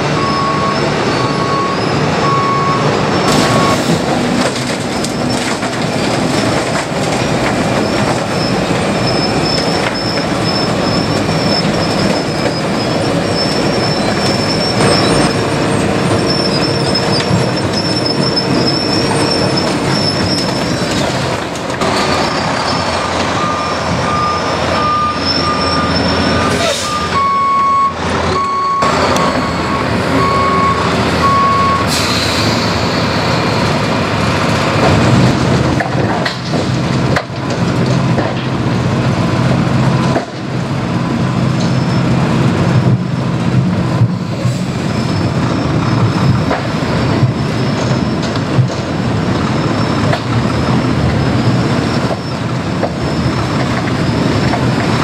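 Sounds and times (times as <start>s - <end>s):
backup alarm beeping: 0.2s - 3.8s, 23.4s - 31.9s.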